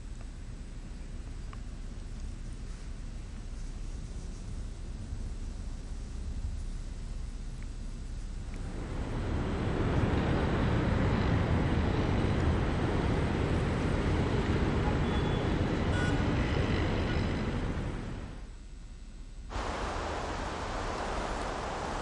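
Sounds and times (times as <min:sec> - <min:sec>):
distant city traffic: 0:08.5 - 0:18.5, 0:19.5 - 0:22.0.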